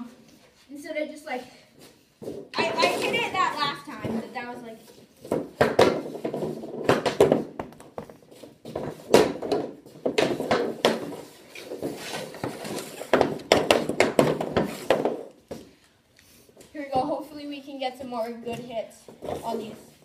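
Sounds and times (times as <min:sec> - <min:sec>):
hockey sticks and pucks clacking: 0:02.2 - 0:15.8, 0:18.0 - 0:20.0.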